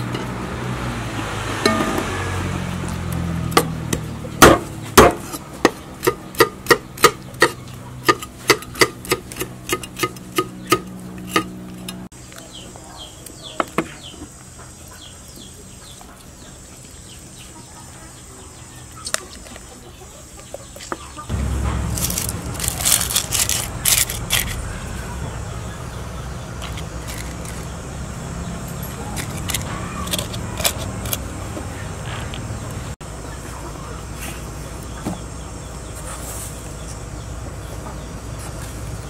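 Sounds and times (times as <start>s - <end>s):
cleaver chopping on wooden board: 3.6s - 11.6s.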